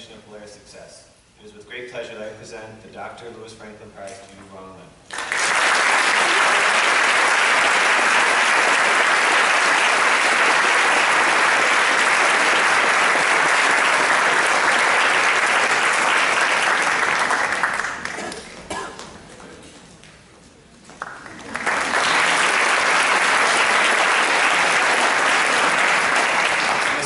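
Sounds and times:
audience applauding: 5.1 - 19.5, 20.9 - 27.0.

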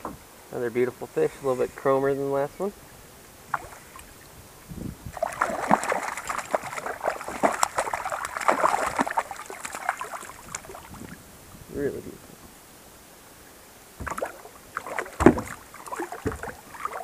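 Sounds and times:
fish splashing at water surface: 3.5 - 4.1, 5.1 - 11.1, 14.0 - 17.0.

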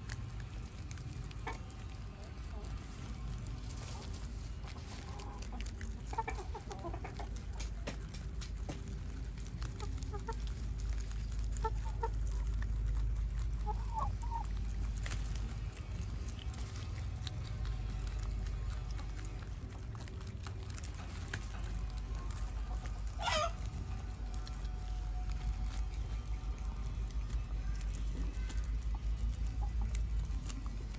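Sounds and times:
hen clucking: 0.0 - 19.6, 20.6 - 26.5, 28.1 - 30.7
rabbits chewing greens: 0.0 - 30.9
steady low rumble: 0.0 - 30.9.

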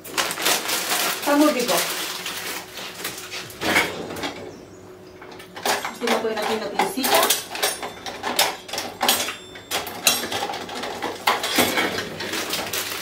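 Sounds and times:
crisp bag crinkling: 0.0 - 3.6, 11.9 - 13.0
metal utensils clattering: 5.2 - 13.0.

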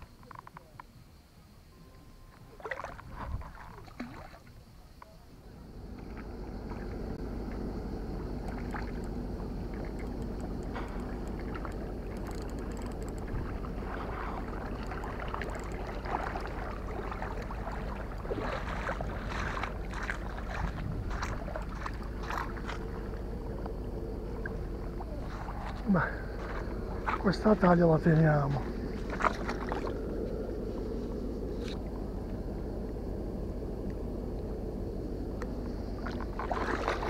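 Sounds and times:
wind rumble on microphone: 2.9 - 4.1, 5.4 - 37.0
fishing rod clicks and taps: 9.8 - 13.3.

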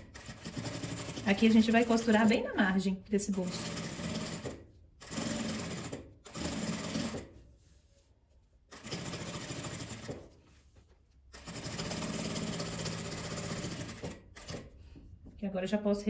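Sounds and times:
sewing machine stitching: 0.0 - 2.4, 3.3 - 7.4, 8.7 - 10.4, 11.3 - 14.8.

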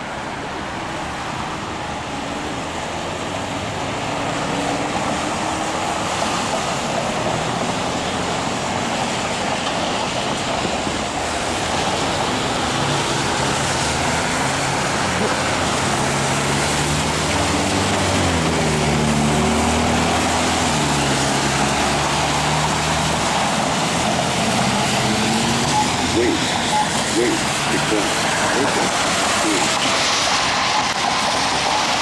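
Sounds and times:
car engines: 0.0 - 32.0
tyres hissing on wet road: 0.0 - 32.0
vehicle passing close: 11.9 - 31.2.

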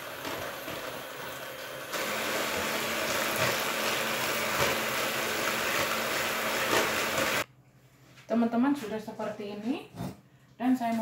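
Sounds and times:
electric mixer whisking: 0.0 - 7.4.

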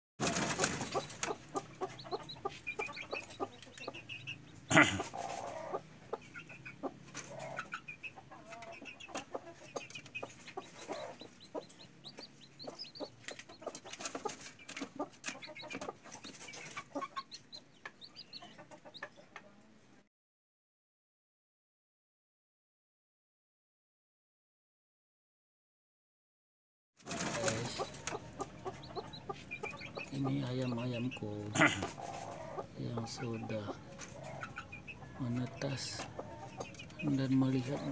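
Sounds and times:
chicks peeping: 0.2 - 19.5, 27.1 - 37.9
hen clucking: 0.2 - 19.5, 27.1 - 37.9.

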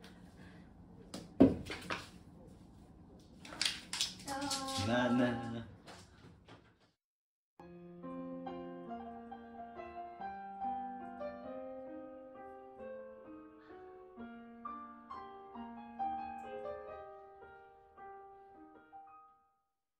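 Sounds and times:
piano music: 7.6 - 19.6.

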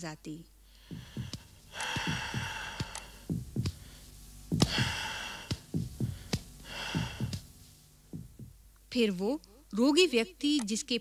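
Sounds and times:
long breaths: 0.6 - 7.4
fingers tapping on chest: 0.8 - 7.5, 8.1 - 8.6.

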